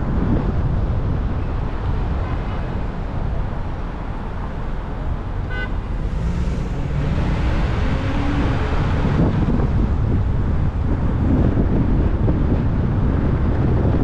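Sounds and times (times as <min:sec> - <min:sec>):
road and traffic rumble: 0:00.0 - 0:14.0
car horn toot: 0:05.4 - 0:05.9
engine revving up: 0:06.0 - 0:09.6.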